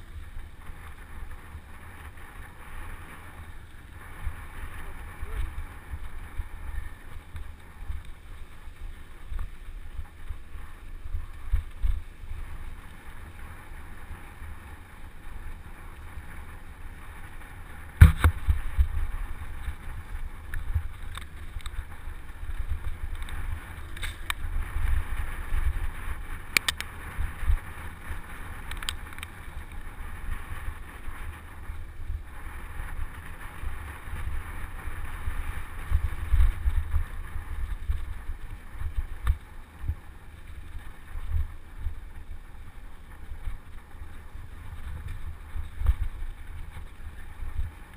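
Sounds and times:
bike tyres rolling on dirt: 0:00.0 - 0:47.9
wind buffeting microphone: 0:00.0 - 0:47.9
bike knocks and rattles: 0:17.9 - 0:19.9.

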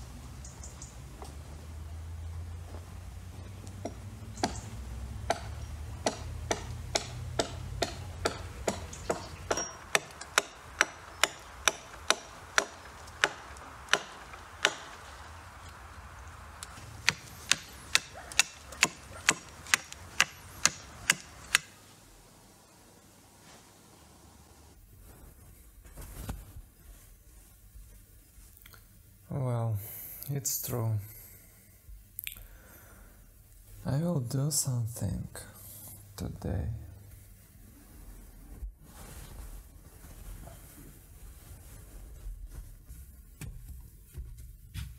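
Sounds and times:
sharp knocks: 0:03.8 - 0:15.0, 0:17.0 - 0:21.7.

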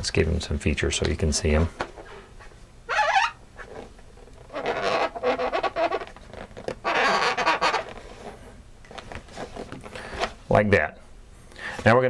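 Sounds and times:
marker squeaking on balloon: 0:02.9 - 0:08.4.

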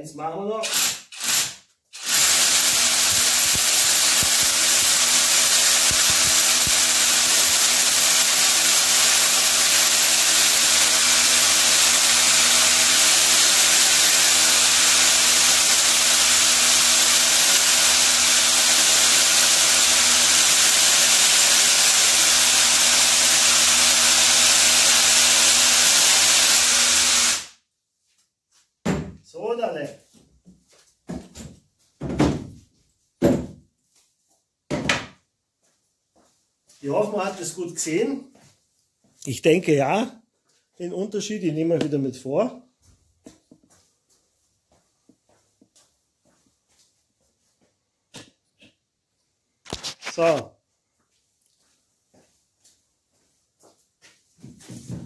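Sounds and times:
rotary hammer drilling: 0:00.6 - 0:27.6.

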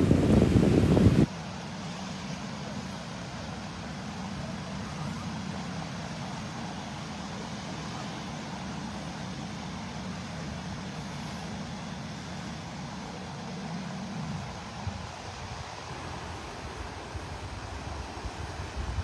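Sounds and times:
wind on microphone: 0:00.0 - 0:01.3, 0:09.8 - 0:19.0
small waves washing on beach: 0:00.0 - 0:19.0.

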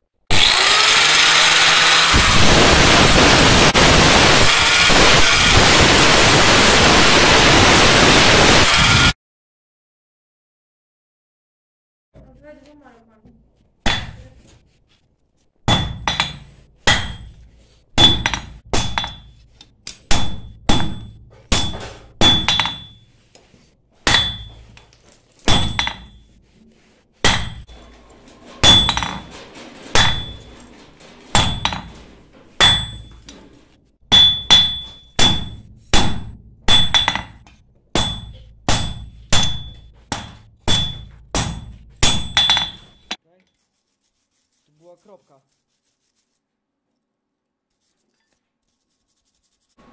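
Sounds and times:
hammer striking on anvil: 0:13.8 - 0:14.2, 0:15.7 - 0:17.4, 0:18.0 - 0:23.1, 0:24.0 - 0:24.8, 0:25.5 - 0:26.2, 0:27.2 - 0:27.8, 0:28.6 - 0:29.3, 0:29.9 - 0:30.6, 0:31.3 - 0:32.0, 0:32.6 - 0:33.3, 0:34.1 - 0:43.2.

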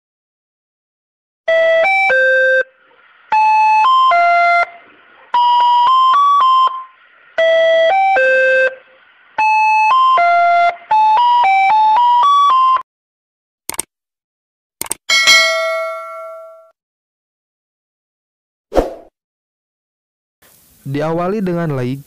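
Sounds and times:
faint hiss: 0:20.4 - 0:22.0.

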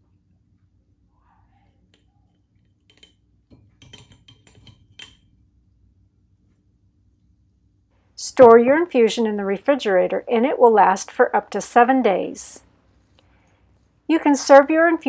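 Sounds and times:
glass jar clinking on metal strainer: 0:02.8 - 0:05.2.

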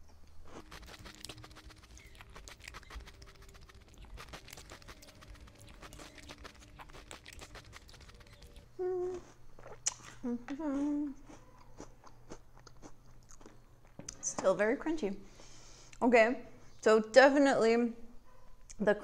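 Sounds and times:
cereal being chewed: 0:00.3 - 0:14.0
person humming: 0:08.7 - 0:09.4, 0:10.2 - 0:11.2.

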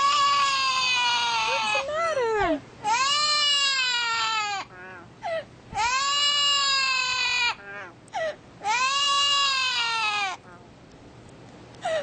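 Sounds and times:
parrot long calls: 0:02.8 - 0:05.1, 0:05.8 - 0:08.0, 0:08.6 - 0:10.6.

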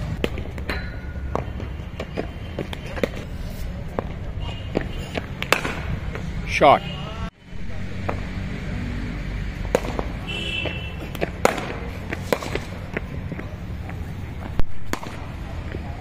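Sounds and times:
cricket bats striking balls: 0:00.0 - 0:03.3, 0:03.9 - 0:06.3, 0:09.6 - 0:15.8.

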